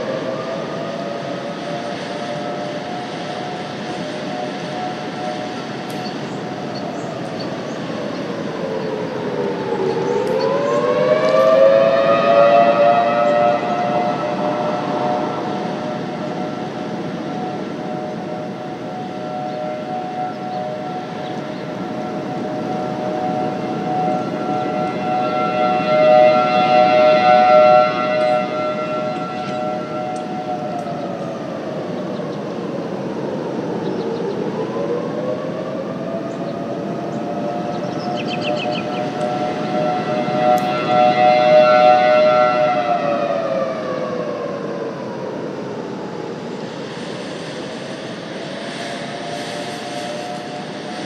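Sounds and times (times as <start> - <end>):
warning siren two-note tone: 0.0 - 7.5, 8.9 - 32.2, 36.1 - 44.5, 48.9 - 51.0
wind noise: 0.0 - 51.0
steady rushing noise: 44.1 - 51.0.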